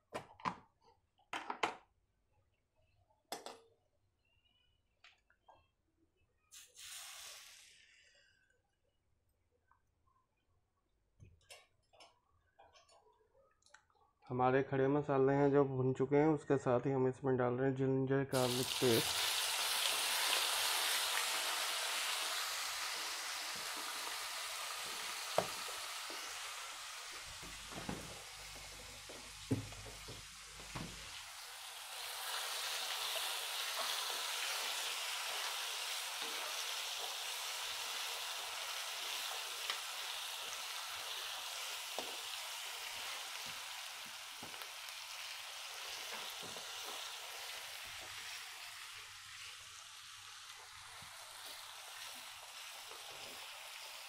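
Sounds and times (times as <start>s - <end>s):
paste sizzling in hot oil: 6.6s - 8.1s, 18.3s - 54.0s.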